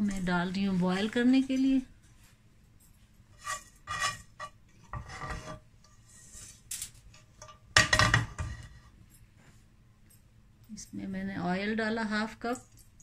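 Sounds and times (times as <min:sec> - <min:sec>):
frying pan knocking and clattering: 0:07.4 - 0:08.7.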